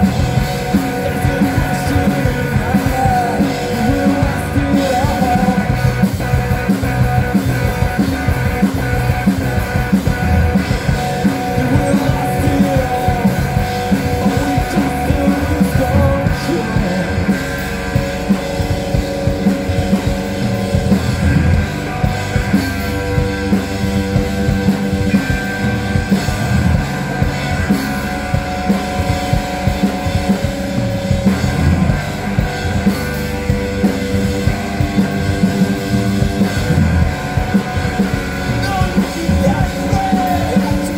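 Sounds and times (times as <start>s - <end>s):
drum kit: 0.0s - 40.9s
electric guitars: 0.0s - 40.9s.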